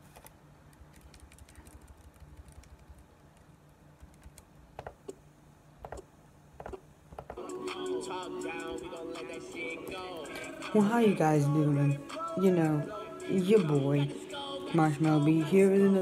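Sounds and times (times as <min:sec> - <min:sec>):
faint low hum: 0:00.0 - 0:16.0
keyboard typing and clicking: 0:00.2 - 0:05.2, 0:05.8 - 0:06.0, 0:06.6 - 0:07.4.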